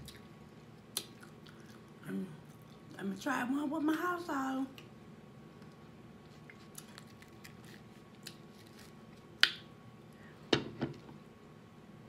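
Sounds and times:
taco shell crunching: 0:06.4 - 0:09.3.

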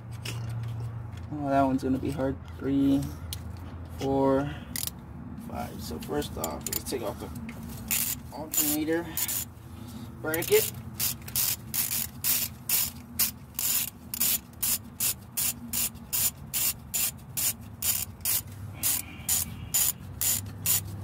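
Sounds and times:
hand ratchet clicking: 0:04.7 - 0:04.9, 0:07.8 - 0:09.5, 0:10.3 - 0:21.0.

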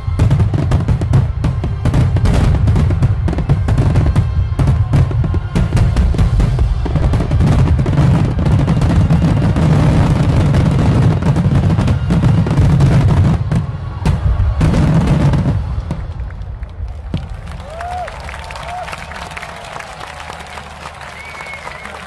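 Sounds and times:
fireworks booming and crackling: 0:00.0 - 0:18.9.

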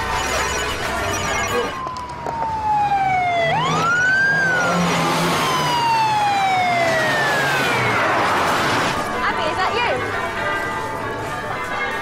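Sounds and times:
police siren wailing: 0:00.0 - 0:09.0.

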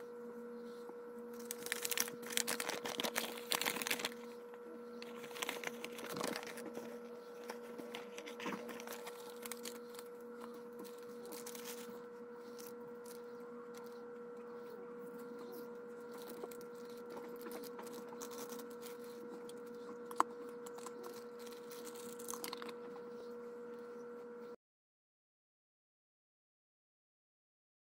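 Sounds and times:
steady hum: 0:00.0 - 0:24.6
paper rustling and crinkling: 0:00.7 - 0:14.0, 0:15.2 - 0:23.2.

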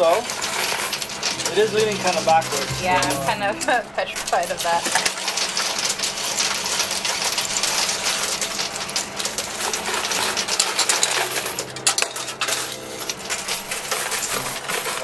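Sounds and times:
faint steady tones: 0:01.1 - 0:04.2
coins clinking on metal shelves: 0:04.8 - 0:15.0.

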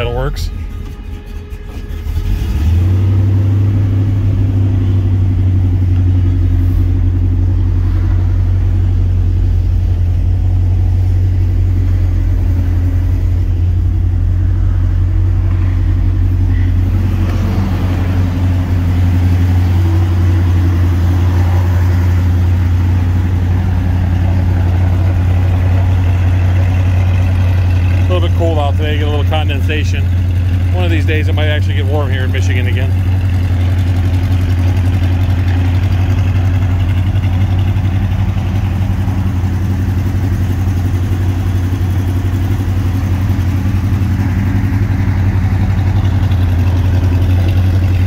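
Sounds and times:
car engine idling: 0:00.0 - 0:48.0.

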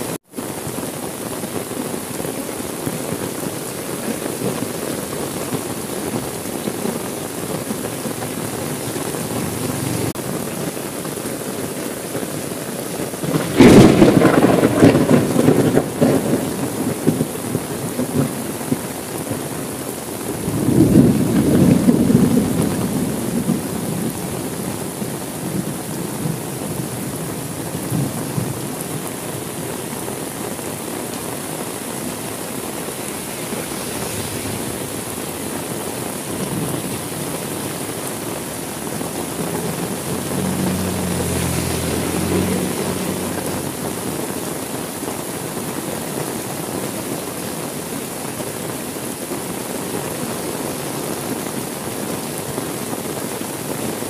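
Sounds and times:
heavy rain: 0:00.0 - 0:54.0
thunder rumbling: 0:04.2 - 0:10.4, 0:13.2 - 0:19.4, 0:20.2 - 0:29.6, 0:30.8 - 0:44.7.

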